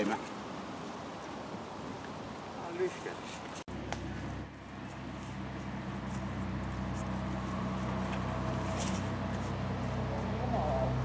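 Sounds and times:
faint scuffs: 0:03.3 - 0:10.3
engine humming: 0:03.7 - 0:11.0.

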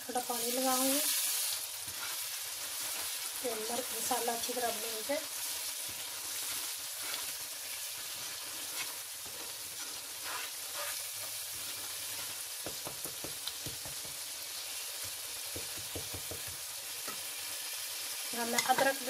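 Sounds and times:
masala sizzling in a pot: 0:00.0 - 0:19.0
wooden spoon scraping a pot: 0:01.8 - 0:03.2, 0:05.9 - 0:07.4, 0:08.0 - 0:12.4.

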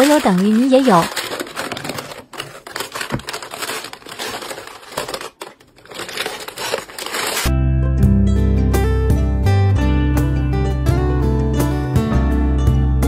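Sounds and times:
plastic containers clattering: 0:00.0 - 0:07.4.

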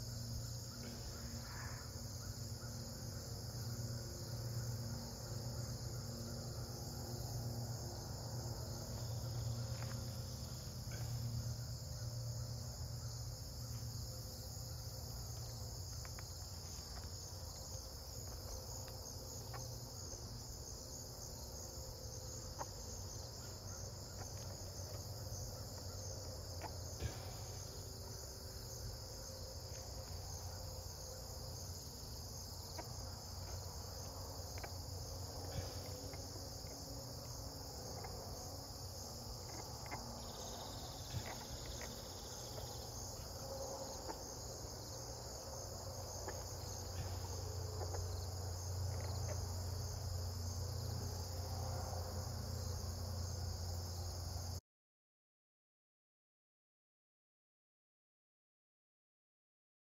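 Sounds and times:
insects chirring: 0:00.0 - 0:54.6.

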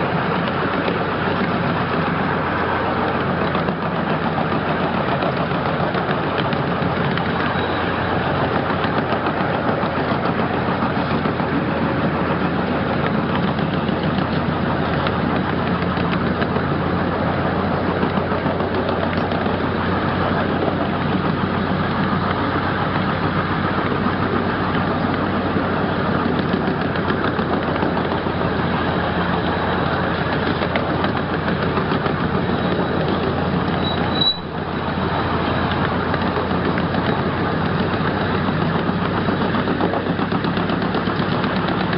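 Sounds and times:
ride-on train rolling on track: 0:00.0 - 0:41.9
short high squeak: 0:07.5 - 0:08.0, 0:33.8 - 0:34.6.

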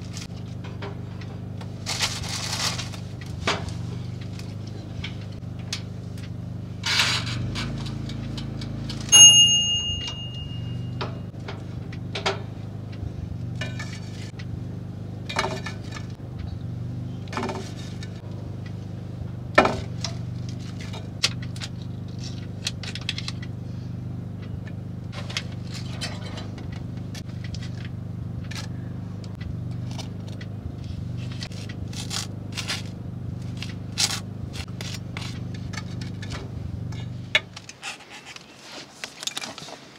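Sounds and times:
metal tongs clinking: 0:09.1 - 0:11.2
timer bell ding: 0:09.1 - 0:11.3.

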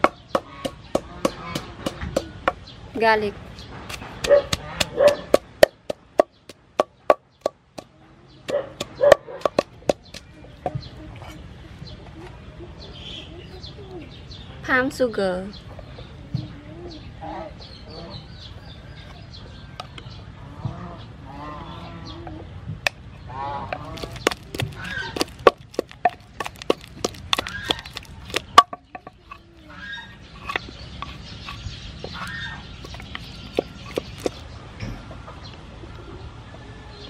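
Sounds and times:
chickens clucking: 0:00.0 - 0:02.6, 0:03.9 - 0:14.2, 0:15.6 - 0:36.3
pestle knocking in wooden mortar: 0:00.0 - 0:02.6, 0:03.9 - 0:07.9, 0:08.5 - 0:10.9, 0:23.7 - 0:29.4, 0:30.3 - 0:34.4.

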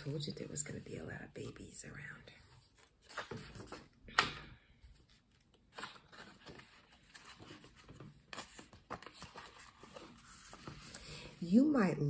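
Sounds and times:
paper pages turning: 0:02.6 - 0:04.3, 0:04.9 - 0:11.4.

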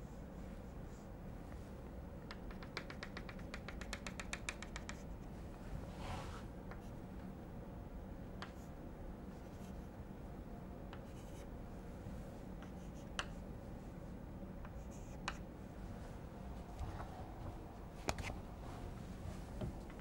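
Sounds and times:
low room hum: 0:00.0 - 0:20.0
chalk tapping on chalkboard: 0:02.3 - 0:05.1, 0:12.6 - 0:13.4.

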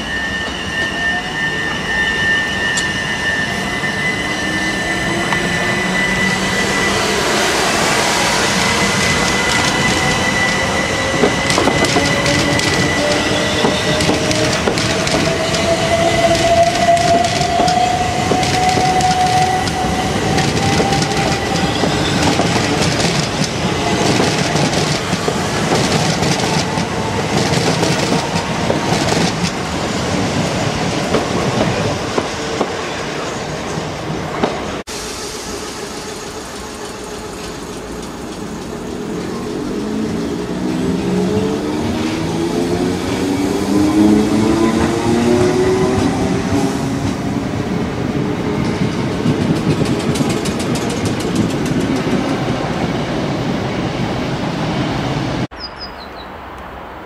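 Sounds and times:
train wheels clattering: 0:08.2 - 0:32.8, 0:48.5 - 0:52.8.

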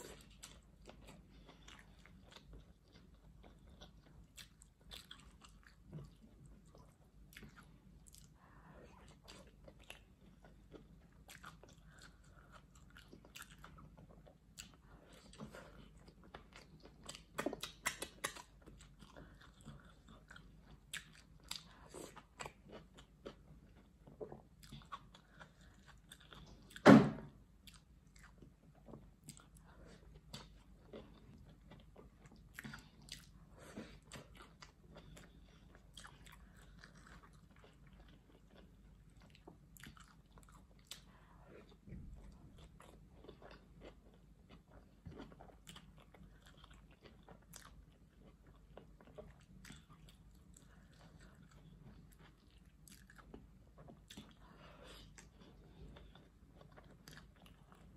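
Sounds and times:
person chewing food: 0:00.0 - 0:57.9
loud thump: 0:26.8 - 0:27.3.

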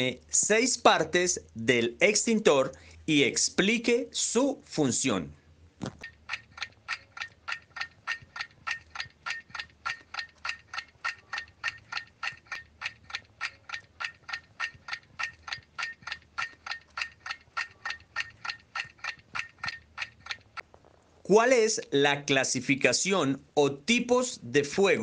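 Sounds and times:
clock ticking: 0:05.8 - 0:20.7.

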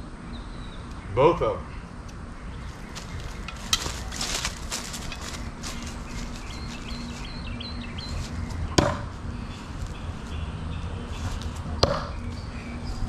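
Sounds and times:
small bird chirping: 0:02.1 - 0:13.0
footsteps crunching through dry leaves: 0:02.5 - 0:13.0
knife thunking into wooden post: 0:08.8 - 0:09.1, 0:11.8 - 0:12.1.

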